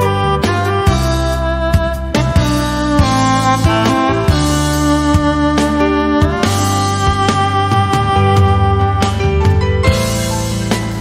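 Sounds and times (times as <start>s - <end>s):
gentle instrumental music: 0.0s - 11.0s.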